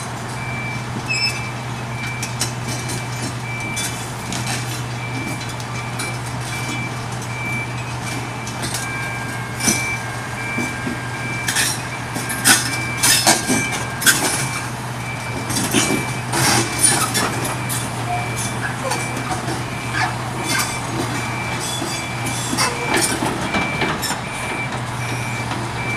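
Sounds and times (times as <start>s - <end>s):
excavator diesel engine running: 0.0s - 25.9s
steel tracks clanking: 6.1s - 25.9s.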